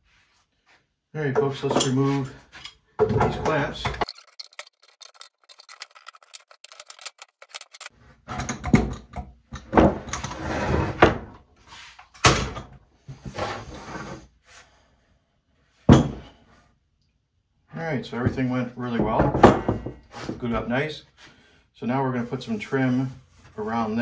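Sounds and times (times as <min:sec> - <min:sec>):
clamps clanking and rattling: 0:02.6 - 0:10.4
clamps clicking: 0:04.0 - 0:07.9.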